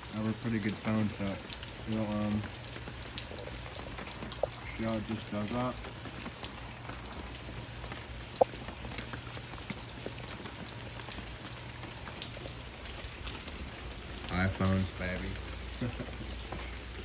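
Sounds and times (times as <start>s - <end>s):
rain falling: 0.0s - 17.0s
raindrop ticks: 0.0s - 17.0s.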